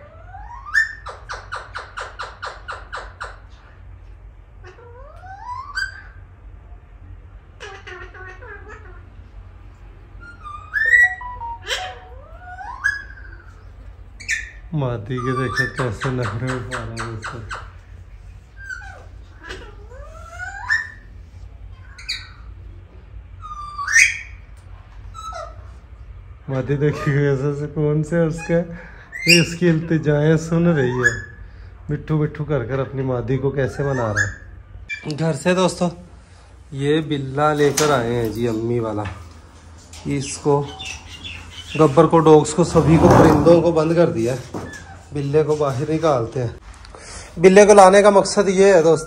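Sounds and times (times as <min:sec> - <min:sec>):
parakeet calling: 0:00.0 - 0:03.6, 0:04.6 - 0:06.2, 0:07.6 - 0:09.3, 0:10.2 - 0:21.2, 0:21.8 - 0:22.6, 0:23.4 - 0:24.5, 0:28.3 - 0:30.0, 0:30.6 - 0:31.7, 0:32.8 - 0:35.4, 0:40.1 - 0:45.3.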